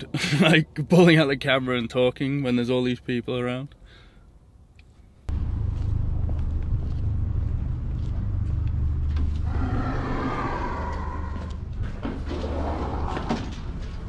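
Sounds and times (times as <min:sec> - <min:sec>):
footsteps: 0:04.9 - 0:14.0
low steady rumble: 0:05.3 - 0:14.0.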